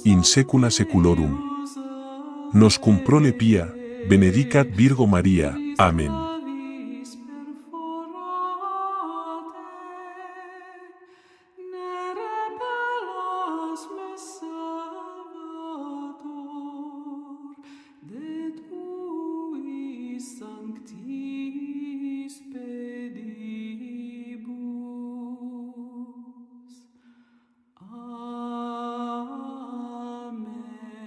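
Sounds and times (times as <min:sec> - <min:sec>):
person singing long notes: 0:00.0 - 0:01.6, 0:02.5 - 0:07.0.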